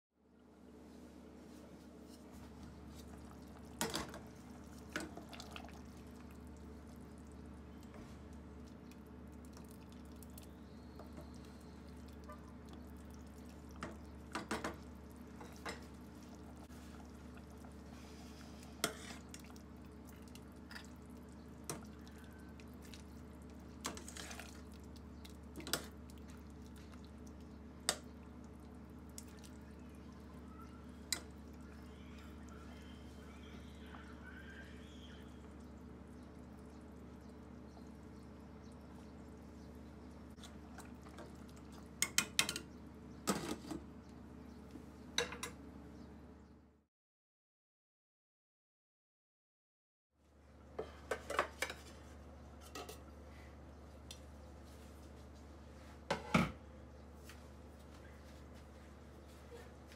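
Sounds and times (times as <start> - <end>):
stew simmering with sharp pops: 23.7 - 28.5.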